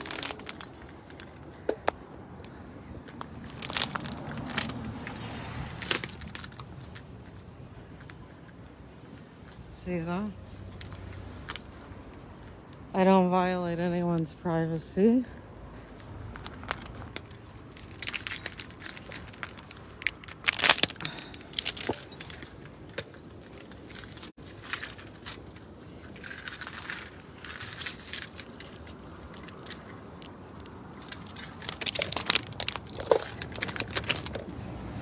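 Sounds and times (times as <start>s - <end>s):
rustling handling noise: 0.0s - 12.9s, 15.8s - 35.0s
keys jangling: 3.4s - 7.0s, 16.4s - 34.5s.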